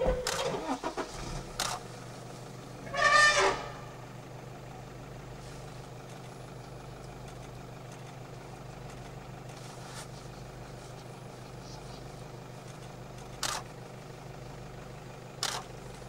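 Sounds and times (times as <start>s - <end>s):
elephant trumpeting: 0.0s - 1.4s, 2.8s - 4.0s
vehicle engine idling: 0.0s - 16.0s.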